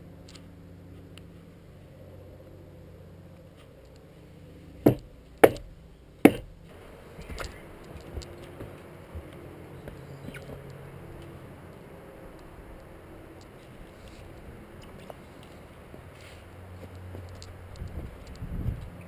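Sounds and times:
sharp knocks on rock: 4.9 - 5.7, 6.3 - 6.5
soft clicks and scuffs: 13.4 - 19.0.

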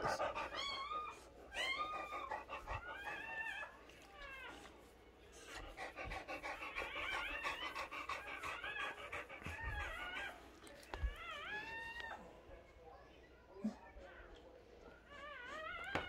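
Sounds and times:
dog whining: 0.0 - 4.7, 5.9 - 10.4, 15.1 - 16.0
dog panting: 0.0 - 11.2.

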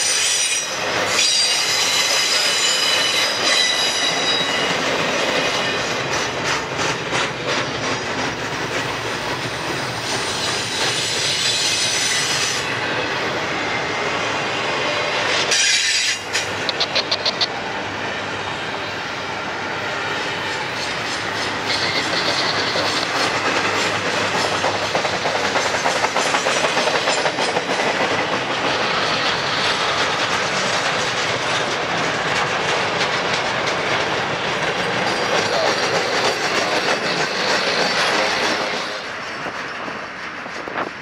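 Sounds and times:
train wheels clicking over rail joints: 0.0 - 12.8, 15.2 - 17.6, 20.4 - 41.0
train rumble: 0.0 - 41.0.

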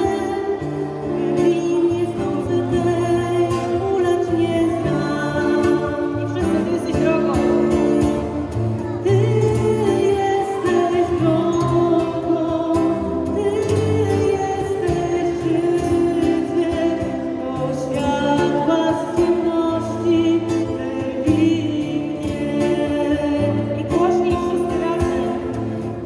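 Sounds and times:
strummed acoustic guitar: 0.0 - 26.0
woman singing slow song: 0.0 - 26.0.

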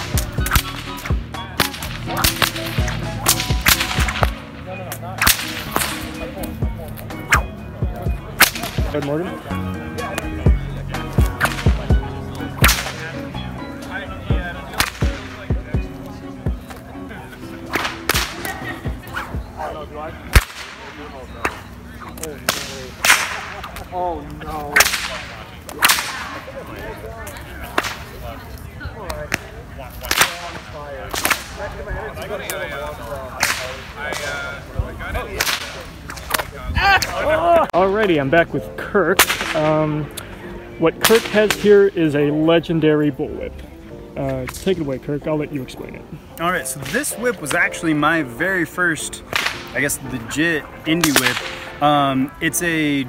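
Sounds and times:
bullwhip cracking: 0.0 - 7.5, 8.4 - 8.9, 11.2 - 11.9, 12.5 - 13.1, 14.7 - 15.4, 17.6 - 19.7, 20.3 - 23.9, 24.7 - 26.4, 27.7 - 28.1, 29.1 - 31.6, 33.4 - 34.4, 35.4 - 37.2, 39.2 - 39.8, 41.0 - 41.8, 49.3 - 49.8, 51.0 - 51.8
background music: 0.0 - 28.0, 30.1 - 53.0
people talking: 0.0 - 53.0.

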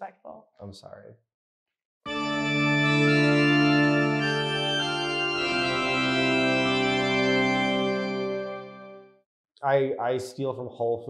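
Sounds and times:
organ chords: 2.1 - 9.2.

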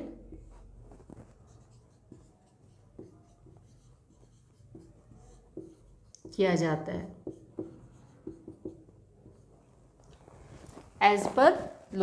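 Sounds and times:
marker scratching on whiteboard: 0.1 - 9.7.

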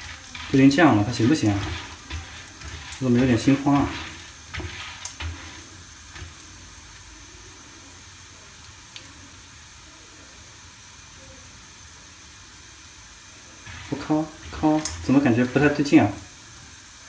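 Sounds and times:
spatula scraping pan: 0.0 - 7.0, 13.6 - 16.2
popcorn sizzling in butter: 0.0 - 17.0.

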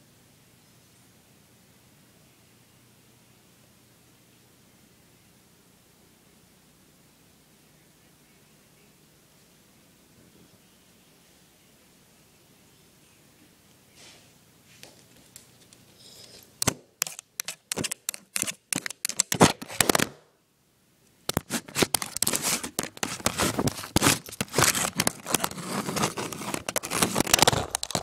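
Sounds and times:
crinkling: 14.9 - 20.2, 21.2 - 28.0
scratching against microphone: 16.1 - 20.1, 21.3 - 28.0.

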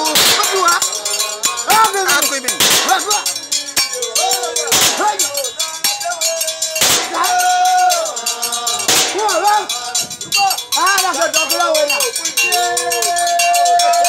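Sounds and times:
percussion: 0.0 - 14.0
voices singing: 0.0 - 14.0
loud noisy drum stroke: 2.5 - 3.2, 6.8 - 7.5, 8.8 - 9.5.

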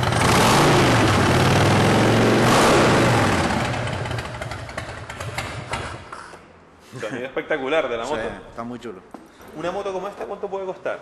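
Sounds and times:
motorcycle engine revving: 0.0 - 5.9.

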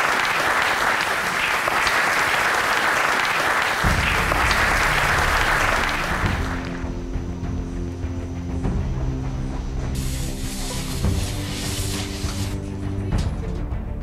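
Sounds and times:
audience applauding: 0.0 - 7.1
low sustained music: 3.9 - 14.0.

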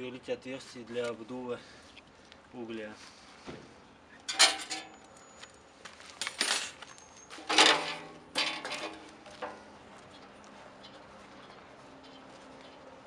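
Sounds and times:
sheet metal clanking: 4.3 - 5.0, 7.4 - 9.6.

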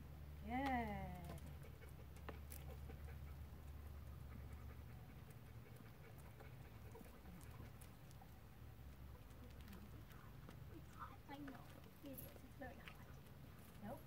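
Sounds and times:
low steady rumble: 0.0 - 14.0
dog panting: 1.3 - 8.5.

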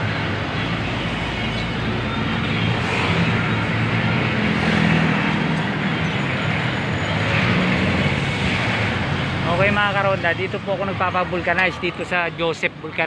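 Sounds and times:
road traffic: 0.0 - 13.0.

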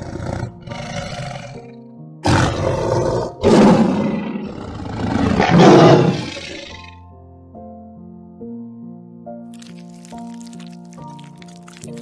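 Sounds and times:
large animal roaring: 0.0 - 6.9
background music: 0.0 - 12.0.

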